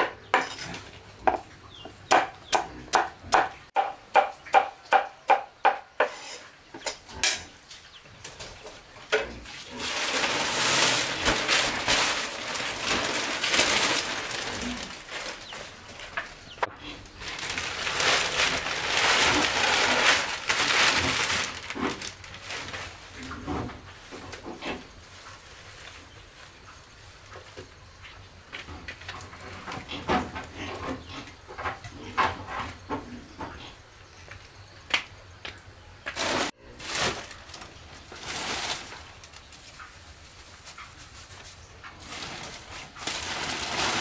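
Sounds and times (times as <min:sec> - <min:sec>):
chopping on wooden board: 0:02.1 - 0:06.1.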